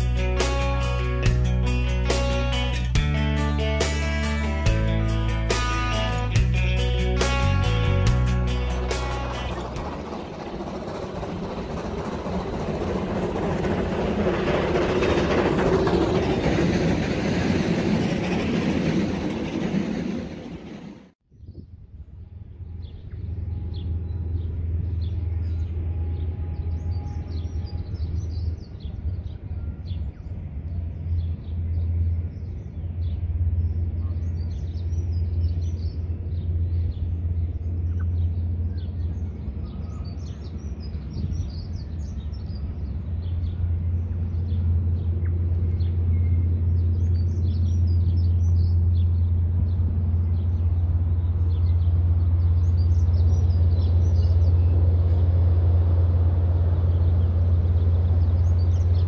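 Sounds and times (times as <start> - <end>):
distant train rumbling: 0.0 - 21.2, 21.8 - 59.0
loud rushing rumble: 0.0 - 21.2, 21.9 - 59.0
birds chirping: 22.8 - 59.0.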